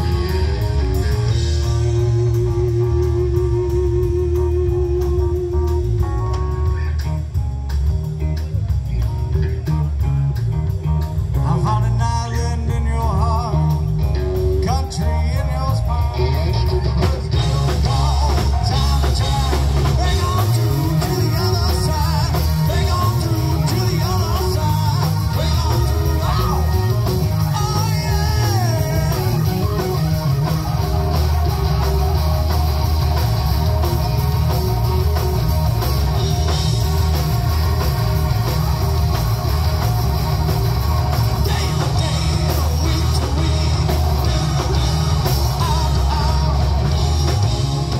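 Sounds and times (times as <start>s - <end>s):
live rock band playing: 0.0s - 47.9s
person singing: 11.4s - 31.9s, 39.8s - 47.9s.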